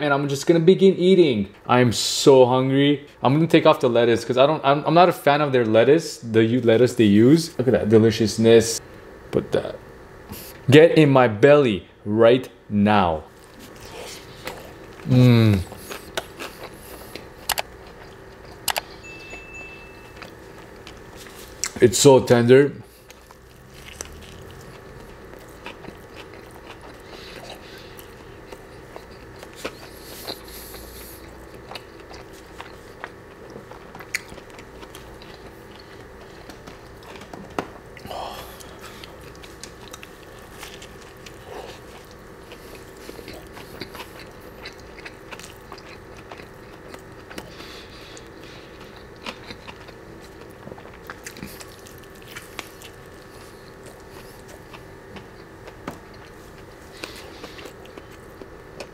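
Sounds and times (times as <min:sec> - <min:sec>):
faint steady hum: 0:00.0 - 0:58.9
biting and chewing: 0:13.3 - 0:19.0, 0:22.8 - 0:58.9.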